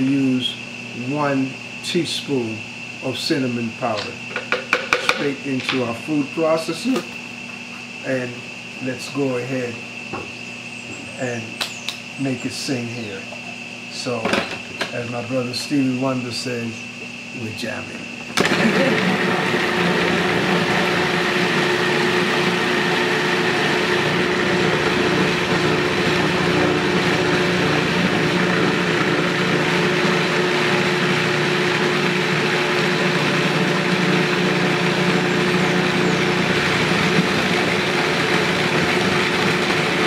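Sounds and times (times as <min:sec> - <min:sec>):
food processor grinding: 0:03.9 - 0:05.8, 0:18.3 - 0:40.0.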